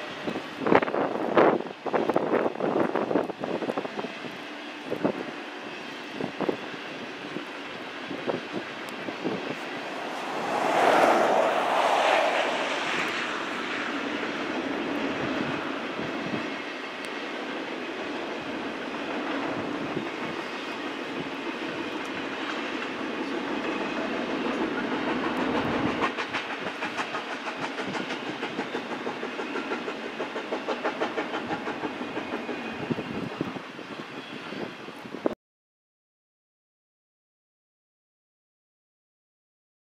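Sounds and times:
freight train rolling past: 0.0 - 34.8
wheels clattering on rails: 22.1 - 33.4.

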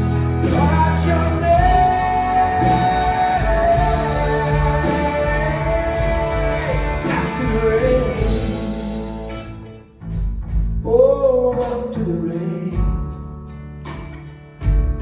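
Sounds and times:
man singing: 0.0 - 9.6, 10.8 - 13.3
electric guitars: 0.0 - 15.0
live country-rock band: 0.0 - 15.0.

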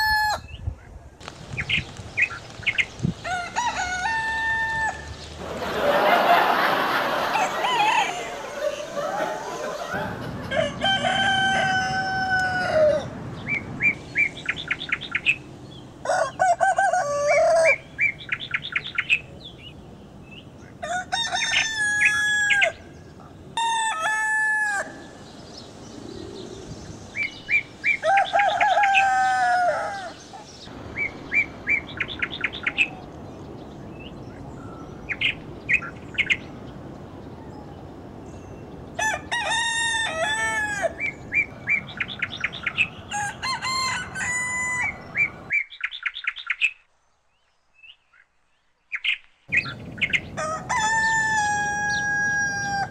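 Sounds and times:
roosters crowing: 0.0 - 0.6, 3.1 - 13.2, 16.0 - 18.0, 20.8 - 25.3, 27.7 - 30.7, 38.9 - 41.8, 42.4 - 45.5, 49.6 - 52.9.

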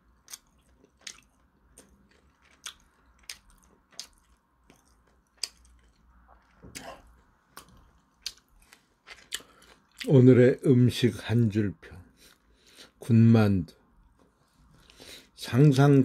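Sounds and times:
person chewing food: 0.0 - 10.1.

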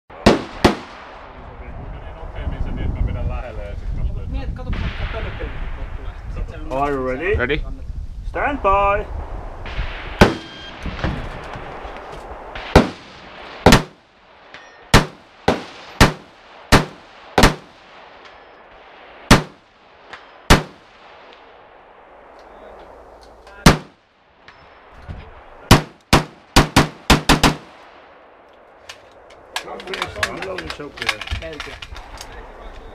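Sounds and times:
rifle shots: 0.1 - 1.2, 9.7 - 11.5, 12.5 - 21.6, 23.6 - 24.0, 25.6 - 28.2.

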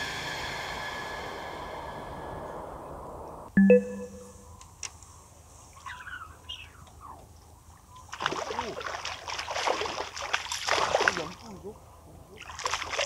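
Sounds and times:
fish splashing at water surface: 8.1 - 11.4.

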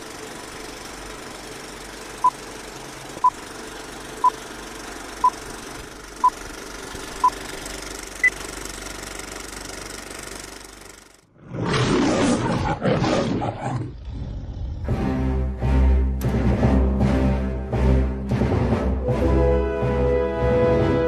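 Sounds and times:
film projector whirring: 0.0 - 11.2.

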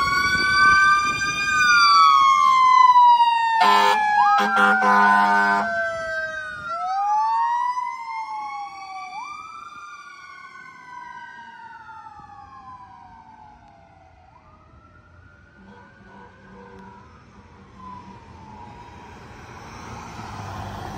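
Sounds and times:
fire engine siren wailing: 0.0 - 20.9.

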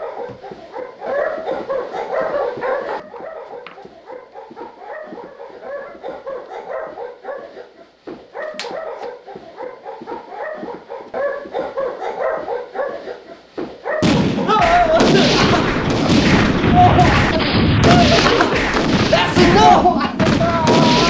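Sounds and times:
dogs yelping and whining: 0.0 - 14.1.

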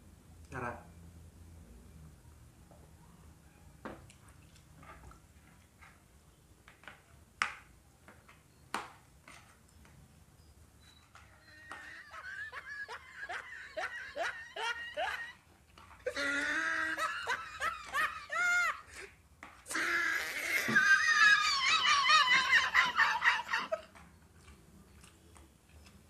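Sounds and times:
lip smacks of eating: 23.8 - 26.0.

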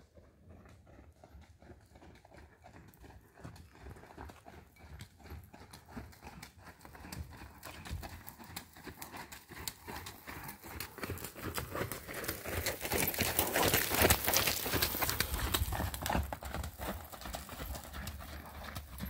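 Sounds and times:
horse hooves on sand: 0.0 - 19.0.

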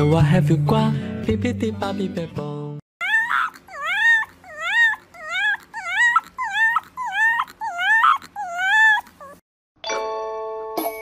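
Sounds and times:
puppy howling: 3.0 - 9.4.

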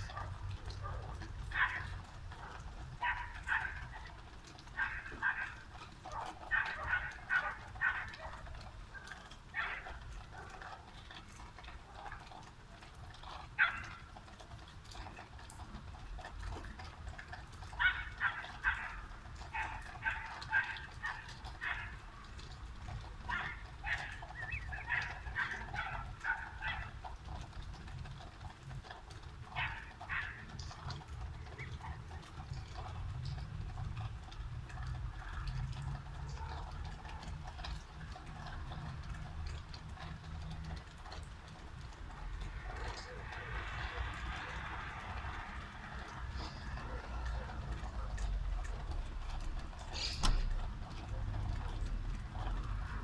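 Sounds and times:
dog barking: 0.0 - 4.2, 4.8 - 10.7, 13.6 - 14.0, 17.7 - 22.0, 23.3 - 27.0, 29.5 - 30.5.

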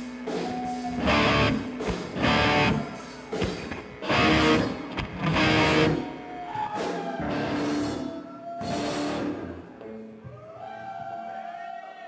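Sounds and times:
heavy electric guitar chords: 0.0 - 6.3, 7.2 - 10.0.

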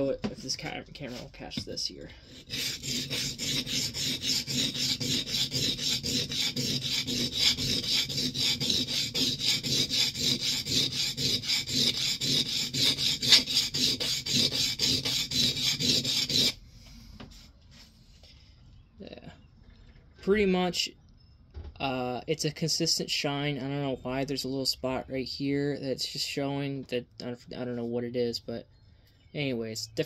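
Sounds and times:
blade rasping on sharpening stone: 2.3 - 16.6.

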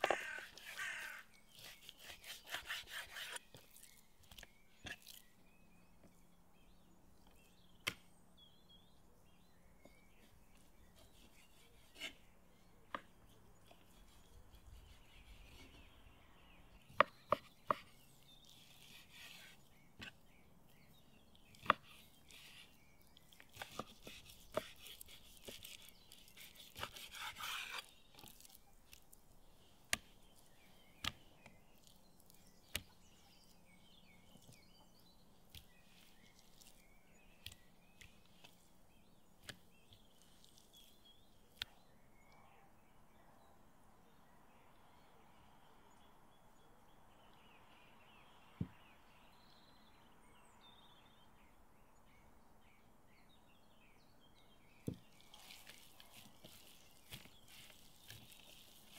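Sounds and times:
knife slicing meat: 1.5 - 3.5, 23.5 - 28.5.

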